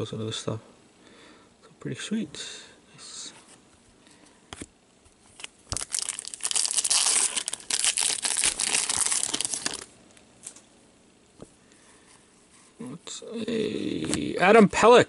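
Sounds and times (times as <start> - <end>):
foil wrapper crinkling and tearing: 5.3 - 9.9.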